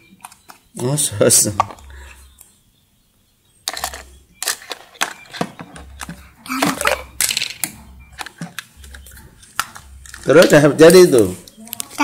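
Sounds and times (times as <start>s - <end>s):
plastic toy cookware clacking: 3.7s - 11.3s.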